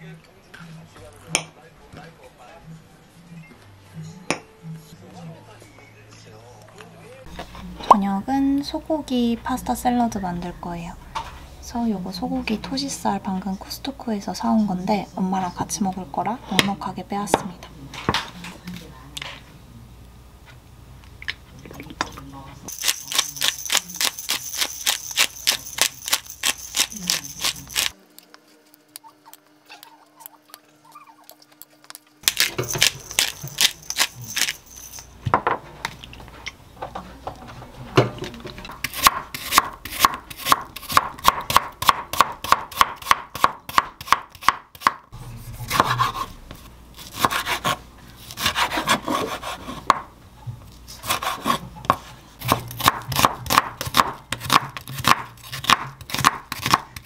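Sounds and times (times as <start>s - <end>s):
knife chopping on wooden board: 38.7s - 45.0s, 45.7s - 50.1s, 51.0s - 57.0s.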